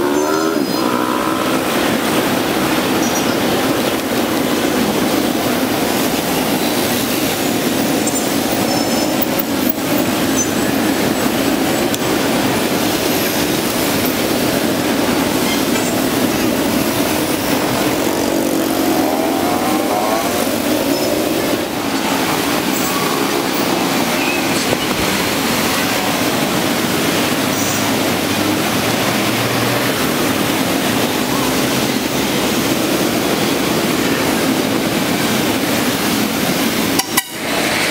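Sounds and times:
motorbike and scooter traffic: 0.0s - 37.9s.

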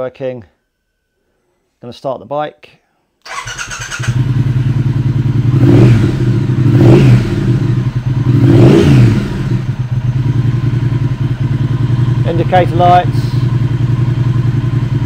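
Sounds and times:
motorcycle electric starter: 3.3s - 4.4s
motorcycle engine idling and revving: 3.3s - 15.0s.

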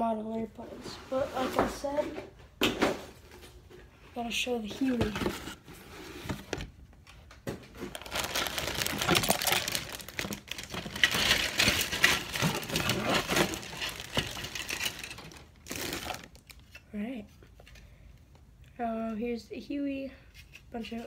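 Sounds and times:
plastic bag crinkling: 7.8s - 16.8s.

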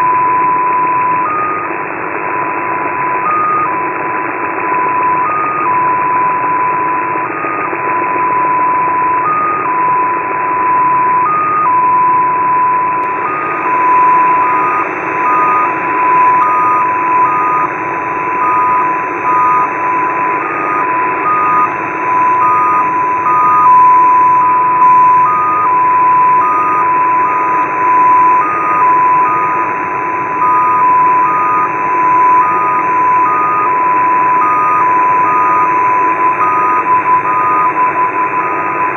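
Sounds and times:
hopping data tone: 0.0s - 38.9s
radio band noise hiss: 13.0s - 38.9s.

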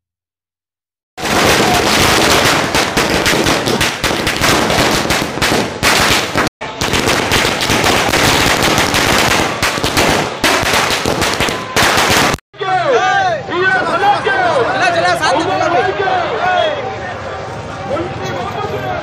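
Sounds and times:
firecrackers bursting: 1.2s - 12.4s.

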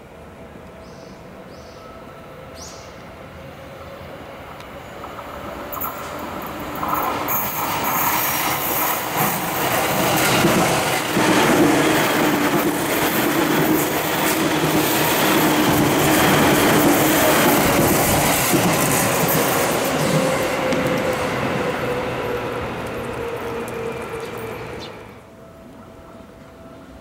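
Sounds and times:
train motor humming: 4.3s - 25.2s
steel wheels rumbling on rails: 4.8s - 25.2s.

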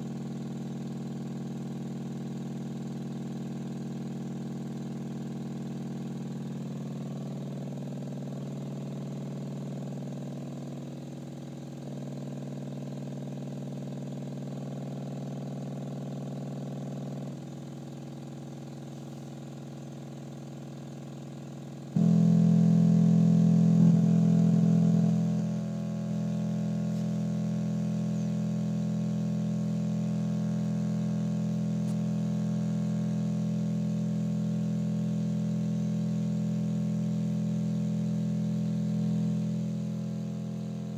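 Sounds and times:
electronic drone tone: 22.0s - 32.6s.

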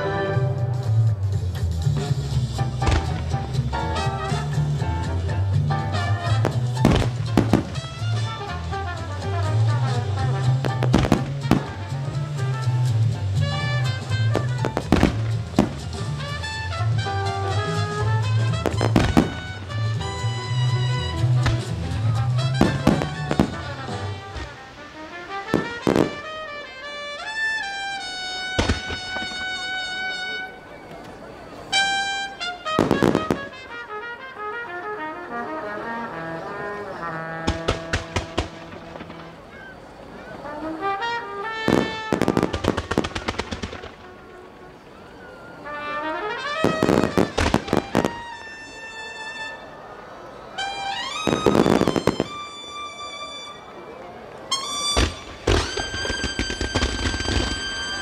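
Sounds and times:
music playing: 0.0s - 30.6s, 31.8s - 39.4s, 45.7s - 48.8s
fireworks bursting with sharp booms: 2.0s - 30.6s, 31.7s - 33.8s, 37.1s - 39.7s, 40.6s - 44.7s, 45.6s - 49.6s, 50.6s - 53.6s, 54.5s - 58.0s.

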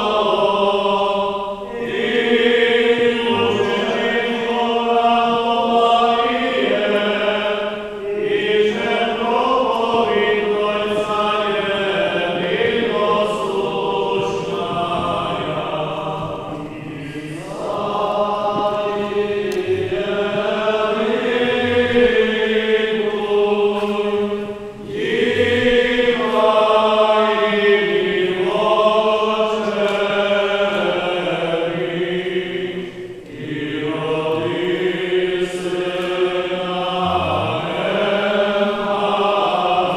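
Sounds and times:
group of voices chanting: 24.9s - 39.9s.

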